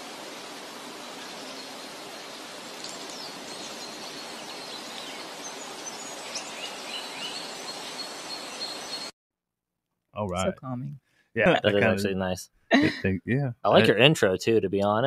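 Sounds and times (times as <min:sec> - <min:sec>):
steady rushing hiss: 0:00.0 - 0:09.0
birds chirping: 0:01.1 - 0:09.1.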